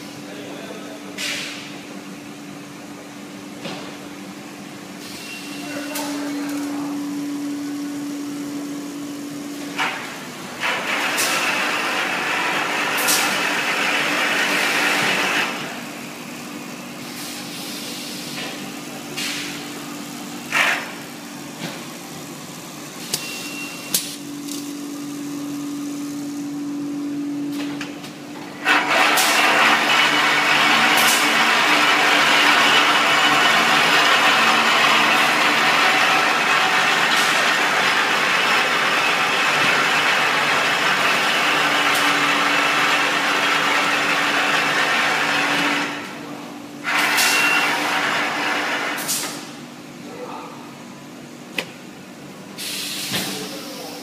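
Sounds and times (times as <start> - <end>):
machine hum: 1.8 - 50.0
hiss of moving parts: 17.0 - 19.6, 52.5 - 54.0.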